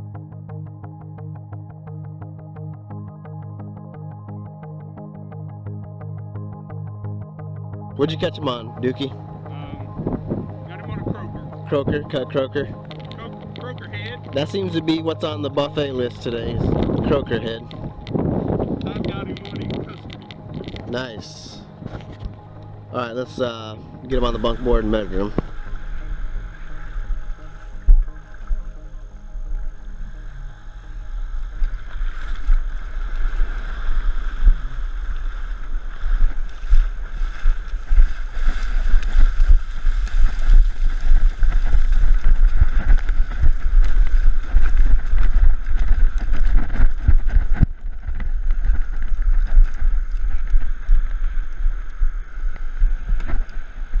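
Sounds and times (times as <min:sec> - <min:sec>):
wind rumble on microphone: 0:09.0 - 0:54.0
surf splashing: 0:29.9 - 0:54.0.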